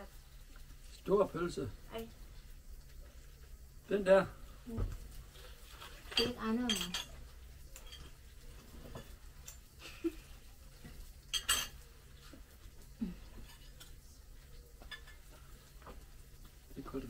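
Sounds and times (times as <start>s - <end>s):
cutlery clatter: 5.8s - 8.2s, 11.2s - 11.9s, 13.4s - 14.0s, 14.8s - 15.3s
cutlery clinking on plates: 5.8s - 8.2s, 10.9s - 11.9s, 13.4s - 14.0s, 14.8s - 15.3s.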